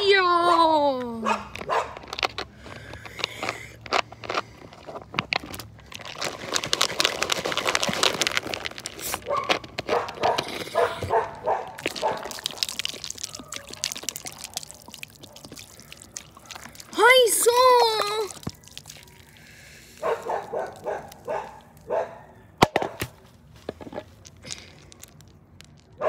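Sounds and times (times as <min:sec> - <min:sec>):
plastic bottle crackling and clicking: 0:01.5 - 0:10.9, 0:11.7 - 0:17.0, 0:17.9 - 0:19.2, 0:22.6 - 0:26.0.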